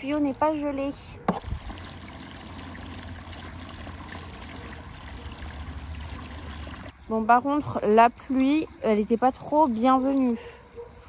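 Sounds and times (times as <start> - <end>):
hose water splashing into tub: 0.0 - 7.6.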